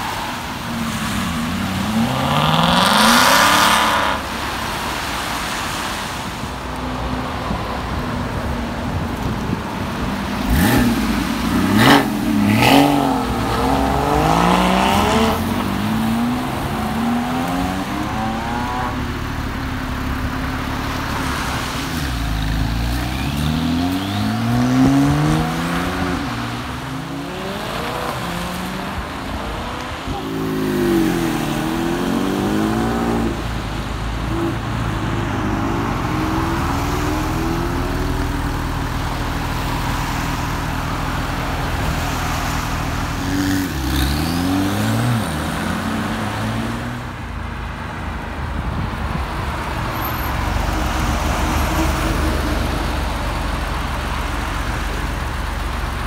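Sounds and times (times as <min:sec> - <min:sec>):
sports cars accelerating: 0:00.0 - 0:05.9, 0:09.2 - 0:47.3.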